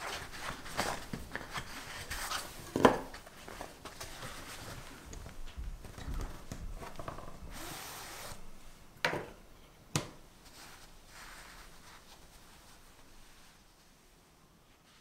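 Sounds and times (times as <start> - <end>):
parchment paper rustling: 0.0 - 8.4, 10.4 - 14.0
paper hissing slide: 7.5 - 8.5.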